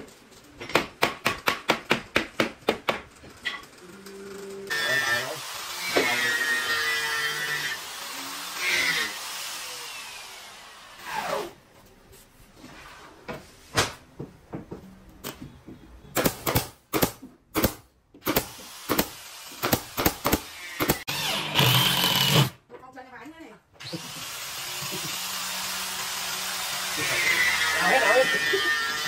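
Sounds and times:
power tool spinning down: 4.7 - 11.5, 18.3 - 22.5, 23.8 - 29.0
power tool starting up: 18.3 - 22.6, 23.8 - 29.0.

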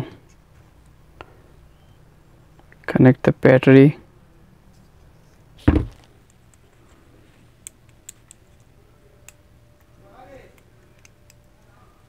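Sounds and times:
dull thump: 5.6 - 6.1.

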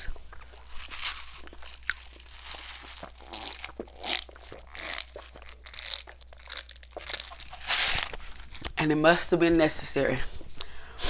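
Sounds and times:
wet gulping and swallowing: 0.0 - 8.8.

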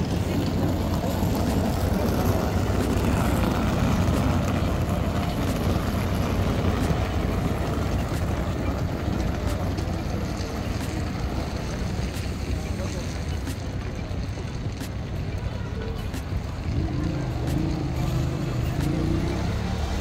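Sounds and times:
boat engine humming: 0.0 - 20.0
wind: 0.0 - 20.0.

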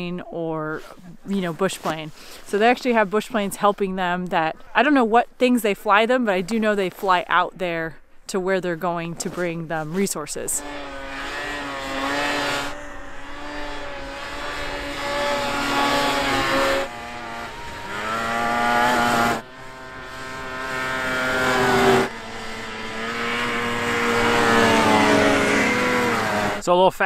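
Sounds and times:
snowmobile engines whining past: 8.5 - 26.6.

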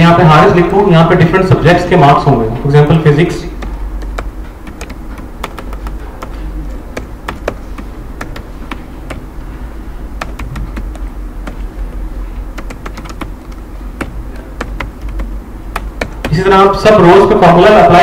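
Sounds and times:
steady low hum: 0.0 - 18.0
keyboard typing: 3.5 - 16.5.

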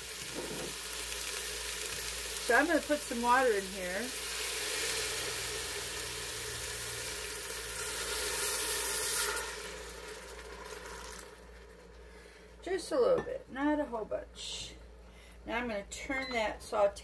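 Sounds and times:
meat sizzling in a pot: 0.0 - 12.0.

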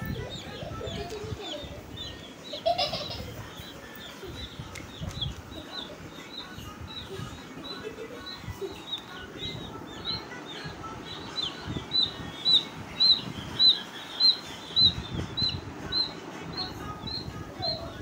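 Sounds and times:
chick peeping: 0.0 - 18.0.

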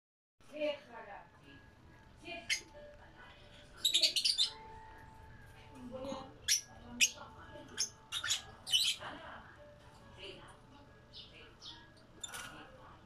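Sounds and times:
lovebirds chirping and squawking: 2.2 - 10.1, 10.7 - 13.0.

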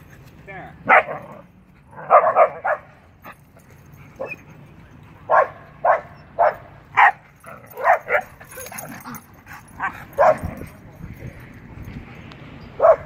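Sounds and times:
dogs yipping and barking: 0.8 - 11.6, 12.6 - 13.0.

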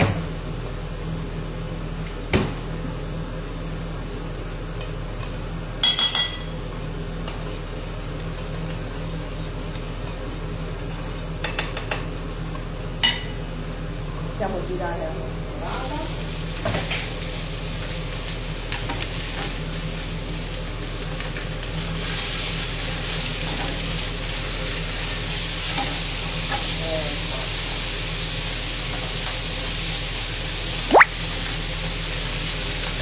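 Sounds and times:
fish sizzling in grill pan: 15.3 - 33.0.

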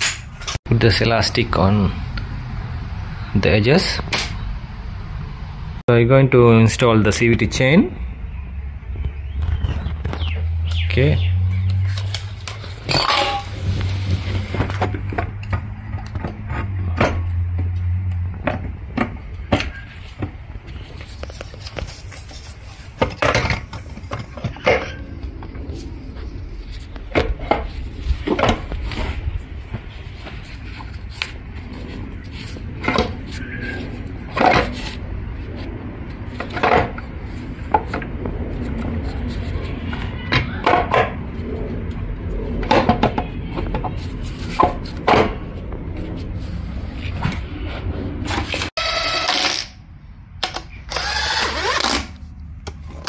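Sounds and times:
metal scraping: 11.8 - 18.0.

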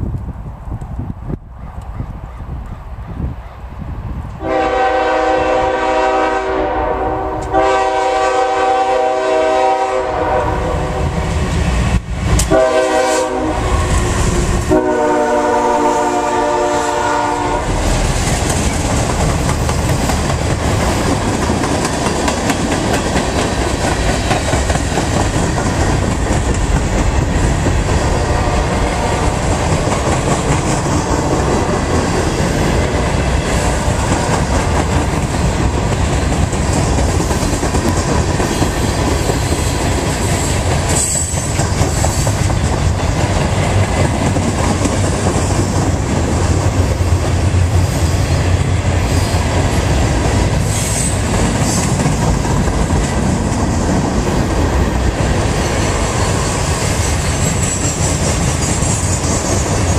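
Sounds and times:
locomotive air horn blasts: 4.4 - 11.1, 12.5 - 14.0, 14.6 - 17.9
train wheels clattering over rails: 17.7 - 59.9.

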